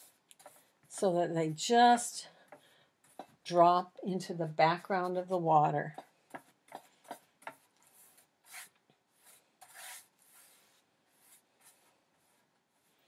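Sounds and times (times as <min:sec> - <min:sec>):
paintbrush swishes: 0:07.8 - 0:13.0.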